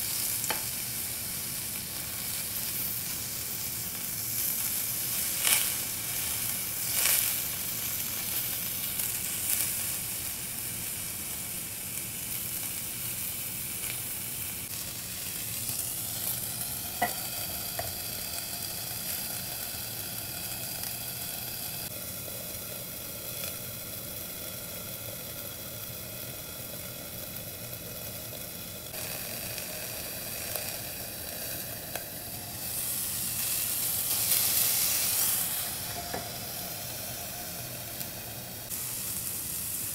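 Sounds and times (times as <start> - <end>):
kebabs sizzling on griddle: 0.0 - 39.9.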